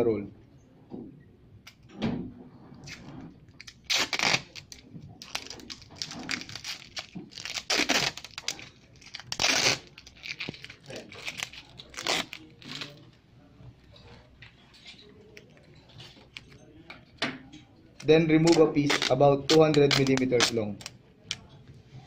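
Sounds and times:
adhesive tape ripping off roll: 2.9 - 13.0, 18.0 - 21.5.

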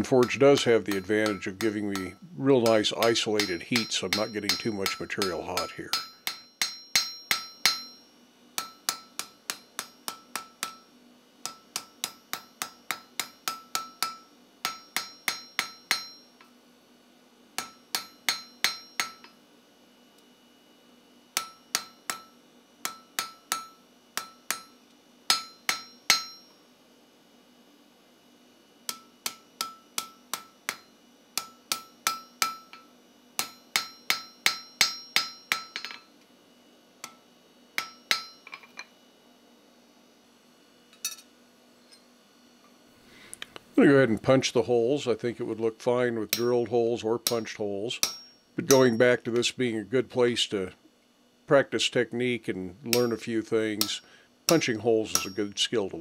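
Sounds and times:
hammer striking metal on anvil: 0.1 - 16.5, 17.6 - 19.4, 21.4 - 26.6, 28.9 - 36.1, 37.0 - 37.2, 37.8 - 38.9, 41.0 - 41.3, 46.3 - 49.5, 52.9 - 55.6.

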